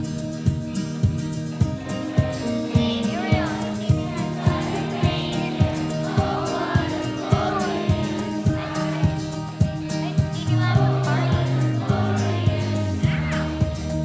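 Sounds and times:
instrumental accompaniment with beat: 0:00.0 - 0:14.0
children's choir singing: 0:01.7 - 0:14.0.

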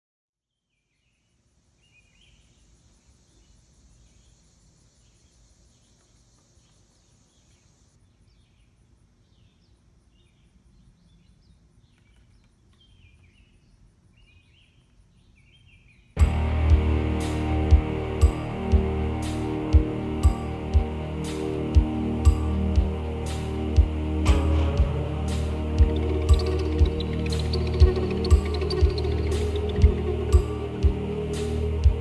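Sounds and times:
short insect chirps: 0:01.7 - 0:08.0
insect buzz: 0:01.7 - 0:08.1, 0:16.9 - 0:32.0
fast even ticking: 0:25.8 - 0:31.1.

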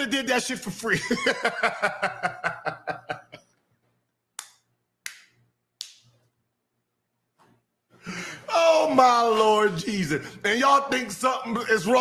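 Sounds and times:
man laughing hard: 0:01.0 - 0:03.4
sharp slaps or claps: 0:04.4 - 0:06.1.

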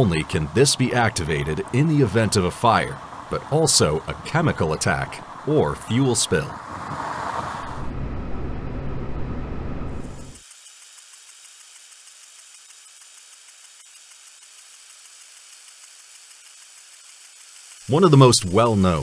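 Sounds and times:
faint steady hiss: 0:00.0 - 0:06.9, 0:15.6 - 0:19.0
water spray rushing: 0:00.0 - 0:07.9, 0:10.1 - 0:19.0.

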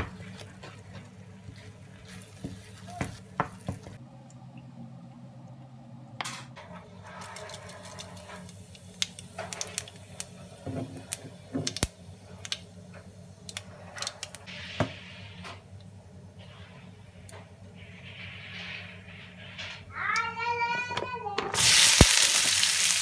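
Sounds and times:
seeds crackling in hot oil: 0:00.0 - 0:04.0, 0:07.0 - 0:14.6, 0:21.6 - 0:23.0
low steady hum: 0:00.0 - 0:14.5.

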